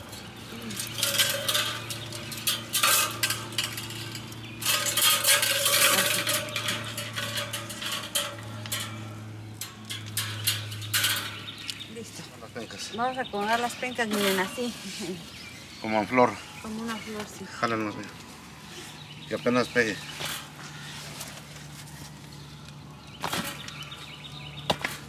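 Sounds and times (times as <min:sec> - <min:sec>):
wire grill rack clinking: 0:00.0 - 0:14.8, 0:19.0 - 0:22.0, 0:22.8 - 0:25.0.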